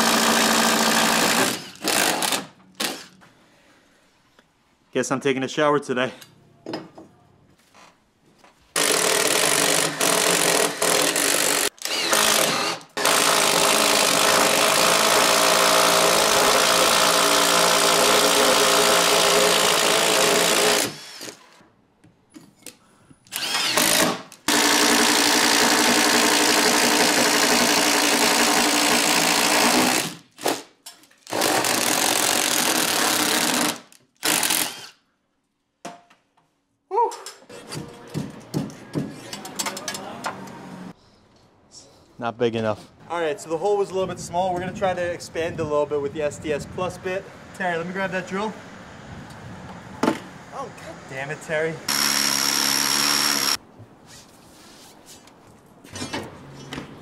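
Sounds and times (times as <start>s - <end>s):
cordless drill boring wood: 0.0s - 3.1s, 8.8s - 21.6s, 23.3s - 30.2s, 31.3s - 35.0s, 51.9s - 53.6s.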